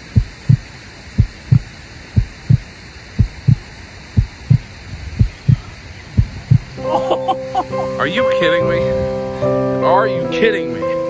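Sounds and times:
heartbeat thumps: 0.0s - 7.4s.

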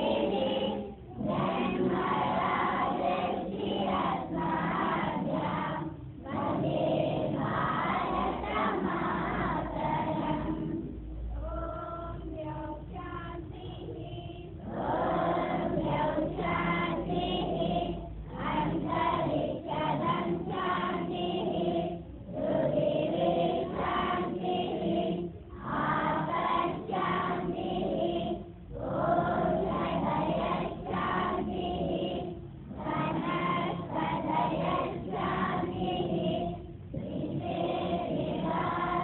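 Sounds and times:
children singing in unison: 0.0s - 39.0s.

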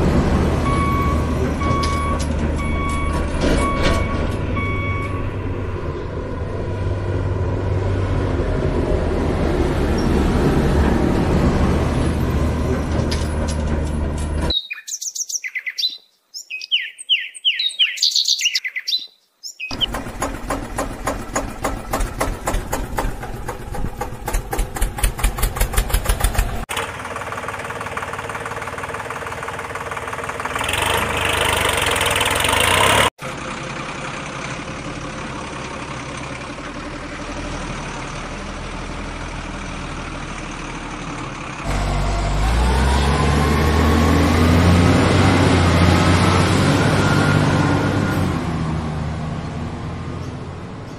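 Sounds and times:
bird chirping: 14.5s - 20.0s
engine chugging: 19.7s - 47.8s
low engine rumble: 19.7s - 50.9s.

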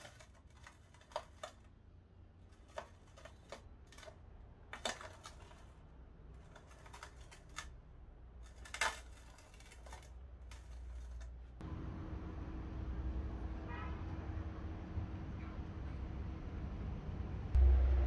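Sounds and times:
low hum: 10.4s - 18.0s.

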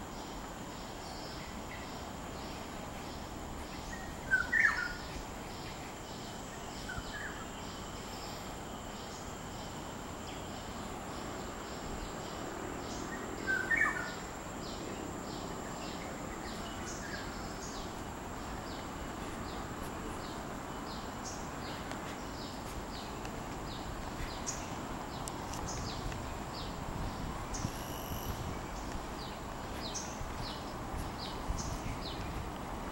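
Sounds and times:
high insect drone: 0.0s - 32.9s
insect chirping: 0.0s - 32.9s
bird calling: 3.6s - 5.8s.

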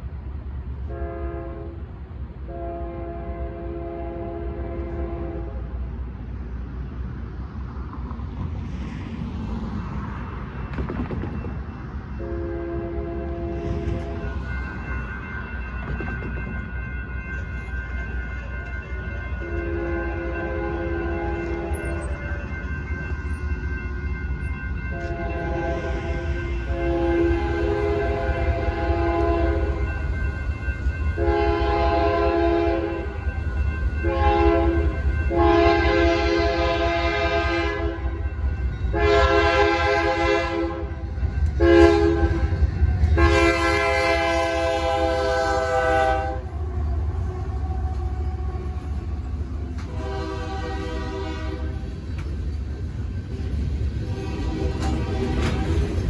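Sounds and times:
freight train rumbling: 0.0s - 56.0s
locomotive air horn blasts: 0.8s - 5.8s, 12.2s - 14.4s, 19.4s - 22.0s, 24.9s - 29.8s, 31.2s - 33.1s, 34.0s - 38.2s, 38.9s - 49.2s, 49.8s - 51.9s, 53.3s - 56.0s
freight cars rolling: 37.8s - 56.0s.

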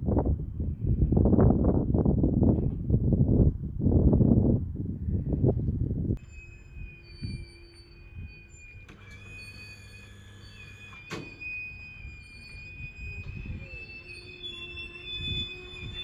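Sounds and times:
train wheels squealing on rail: 6.2s - 16.0s.

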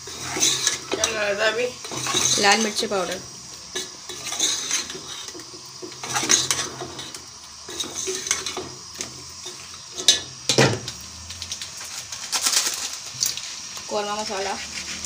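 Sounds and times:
metal ladle scraping cooking pot: 0.0s - 3.1s, 3.7s - 10.3s.

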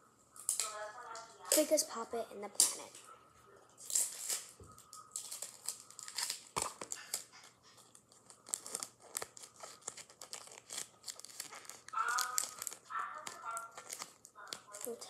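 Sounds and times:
taped paper crinkling: 3.8s - 15.0s.

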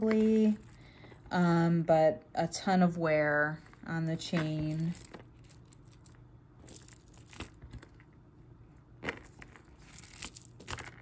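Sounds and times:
metal chain clinking: 4.2s - 7.6s, 9.0s - 11.0s.

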